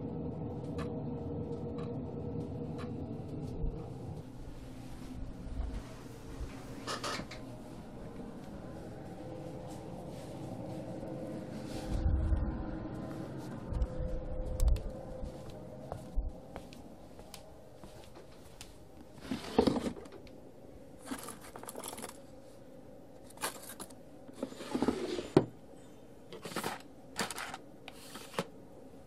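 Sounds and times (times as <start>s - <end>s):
faint steady hum: 0.0s - 29.0s
small objects scraping and rustling: 19.1s - 20.1s, 21.0s - 22.3s, 23.2s - 25.4s, 26.3s - 28.5s.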